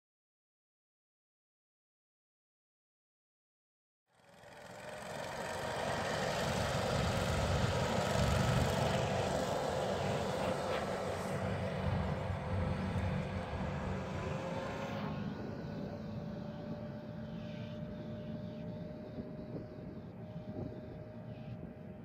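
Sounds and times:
vehicle engine drone: 0:04.1 - 0:22.0
faint whine: 0:05.0 - 0:22.0.

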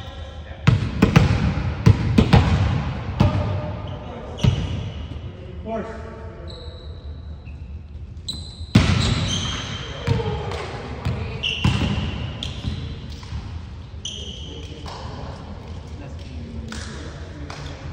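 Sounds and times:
volleyball being struck: 0:00.6 - 0:03.6
sneakers squeaking on wooden floor: 0:03.8 - 0:05.1, 0:06.4 - 0:10.3, 0:11.0 - 0:13.0, 0:14.0 - 0:14.7.

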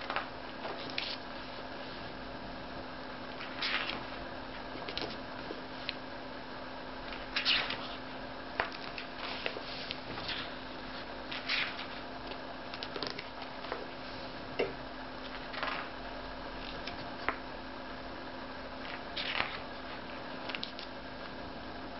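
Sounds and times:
book pages turning: 0:00.0 - 0:01.2, 0:03.4 - 0:04.1, 0:04.8 - 0:06.0, 0:07.2 - 0:08.0, 0:08.6 - 0:12.1, 0:12.7 - 0:13.8, 0:15.2 - 0:16.0, 0:18.8 - 0:20.9
faint steady hum: 0:00.0 - 0:21.9.

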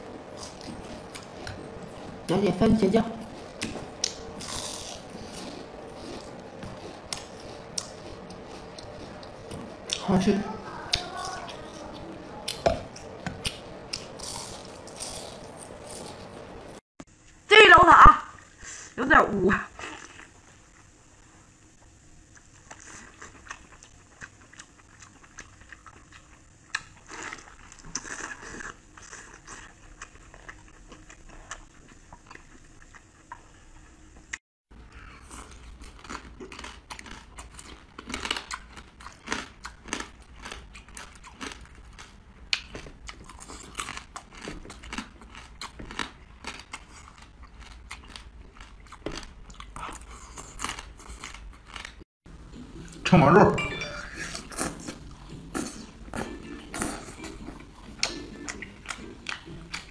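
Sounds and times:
chewing and biting meat: 0:03.3 - 0:10.0, 0:34.9 - 0:52.0, 0:54.4 - 0:59.9.

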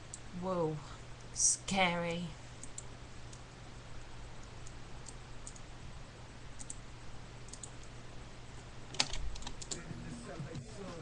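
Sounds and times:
low steady hum: 0:00.0 - 0:11.0
keyboard and mouse clicks: 0:02.6 - 0:03.4, 0:04.4 - 0:05.7, 0:06.6 - 0:06.8, 0:07.5 - 0:07.9, 0:08.9 - 0:09.8.

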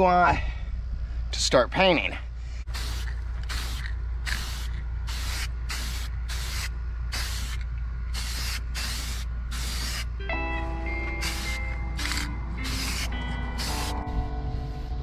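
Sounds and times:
spray can hissing in bursts: 0:02.7 - 0:10.1, 0:11.2 - 0:14.0.

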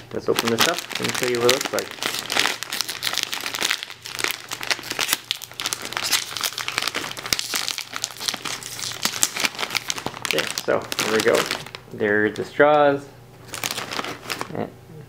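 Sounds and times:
snack bag crinkling: 0:00.0 - 0:12.5, 0:13.4 - 0:14.6.

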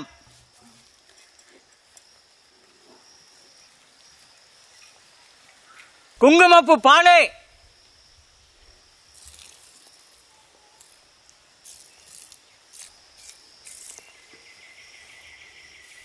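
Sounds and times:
low pulsing insect buzz: 0:00.0 - 0:06.2, 0:07.4 - 0:16.0
soft hissing noises: 0:00.0 - 0:06.2, 0:07.5 - 0:16.0
insects chirring high-pitched: 0:00.0 - 0:16.0.

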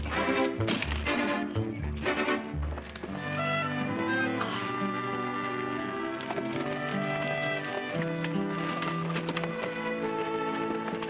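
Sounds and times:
orchestral held notes: 0:00.0 - 0:07.9.

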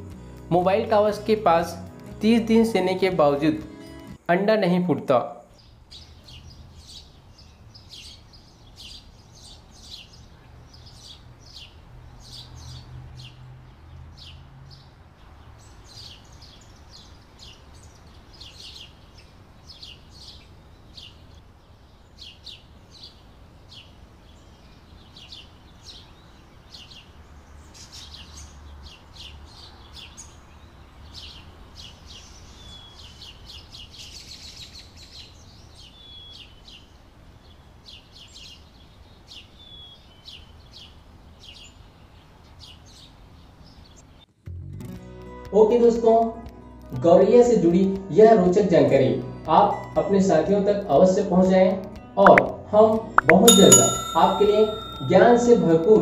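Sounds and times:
sparrows chirping: 0:05.4 - 0:44.2.

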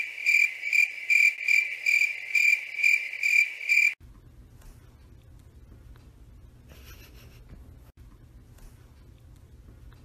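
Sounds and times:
cricket chirping: 0:00.0 - 0:04.0
faint low room hum: 0:04.0 - 0:10.0.

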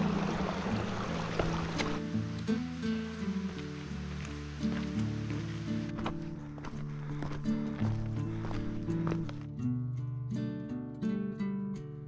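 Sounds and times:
creek water rushing: 0:00.0 - 0:09.2
music with held low notes: 0:00.0 - 0:12.0.

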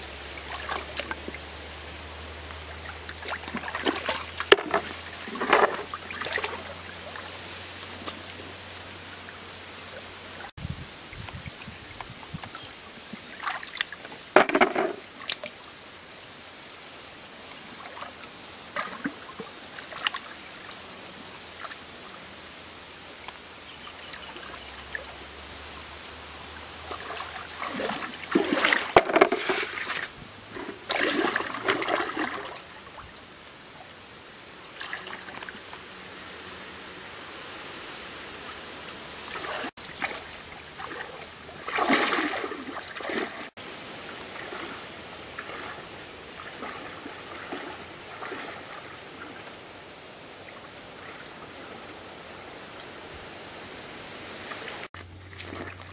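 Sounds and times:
steady background hiss: 0:00.0 - 0:55.9
hands splashing in stream water: 0:02.6 - 0:08.4, 0:26.9 - 0:32.7, 0:39.2 - 0:49.4, 0:54.5 - 0:55.9.

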